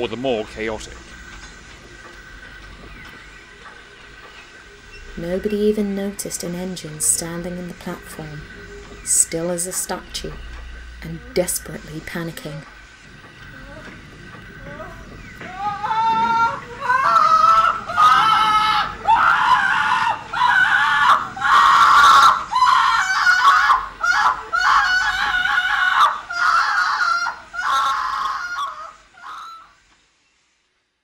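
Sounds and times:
person screaming in panic: 15.5 - 28.8.

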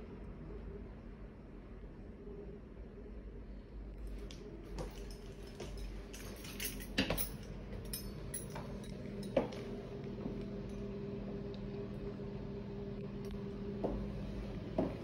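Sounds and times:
steady low hum: 0.0 - 15.0
light clinks and knocks: 4.3 - 9.7.

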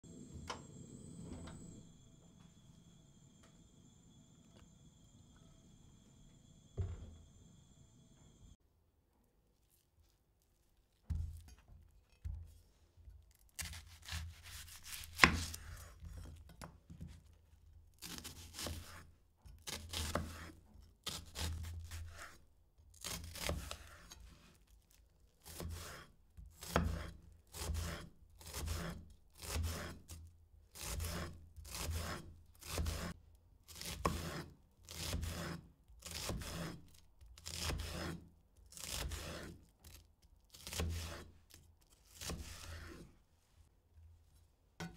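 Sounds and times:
blade strokes on vegetable: 13.6 - 15.9, 19.7 - 22.4, 25.4 - 30.1, 30.8 - 39.6, 40.5 - 41.4, 42.0 - 43.1.

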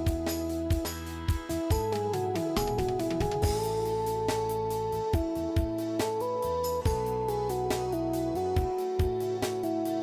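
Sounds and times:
melody of held notes: 0.0 - 10.0
drum beat: 0.1 - 3.8.

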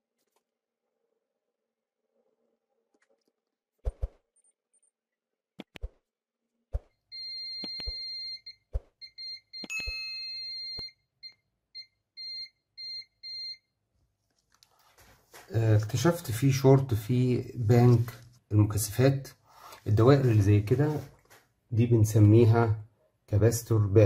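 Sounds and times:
multimeter continuity beeping: 7.1 - 13.7.

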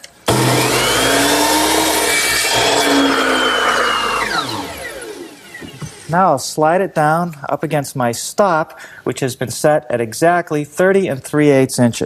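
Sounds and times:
miter saw cutting wood: 0.2 - 6.2.

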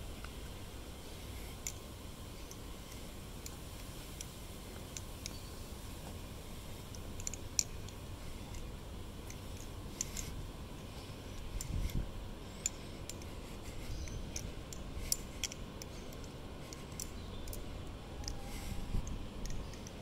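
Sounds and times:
butterfly knife clicking: 19.0 - 20.0.

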